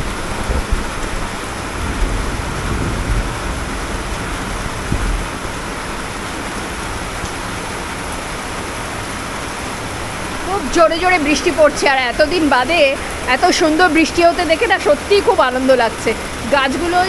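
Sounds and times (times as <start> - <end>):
heavy rain pouring: 0.0 - 17.0
low rumbles: 0.0 - 17.0.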